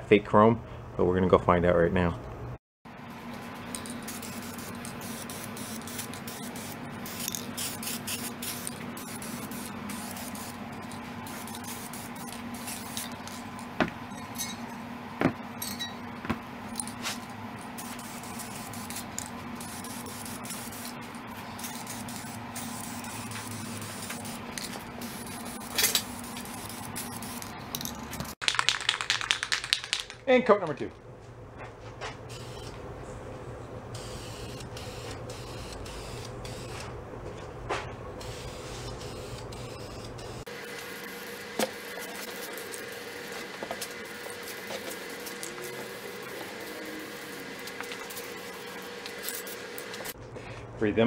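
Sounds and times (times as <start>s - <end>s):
aerosol spray can hissing: 3.8s - 10.6s, 11.2s - 13.1s.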